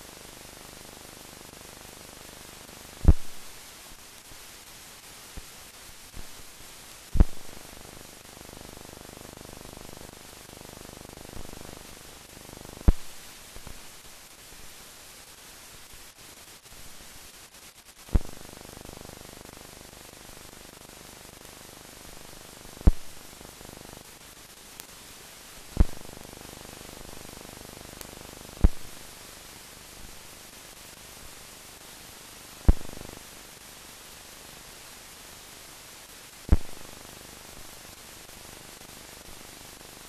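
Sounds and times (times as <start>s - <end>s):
film soundtrack hiss: 0.0s - 40.0s
sharp pops: 3.0s - 3.5s, 7.1s - 7.6s, 12.8s - 13.9s, 18.1s - 18.4s, 22.8s - 23.2s, 25.7s - 26.3s, 28.0s - 29.0s, 32.7s - 33.0s, 36.5s - 36.8s.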